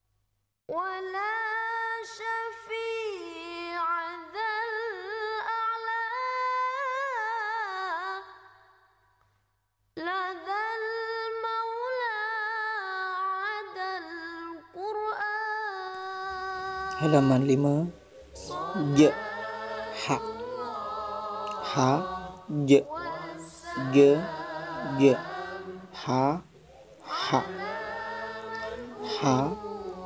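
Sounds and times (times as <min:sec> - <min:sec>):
unaccompanied singing voice: 0:10.0 - 0:30.0.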